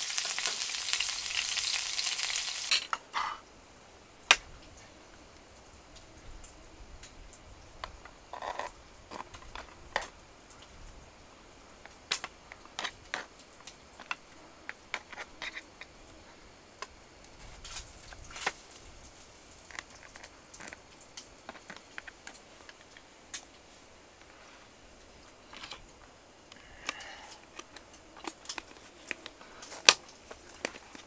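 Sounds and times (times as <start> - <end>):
falling snow ticking: 0.0 - 2.7.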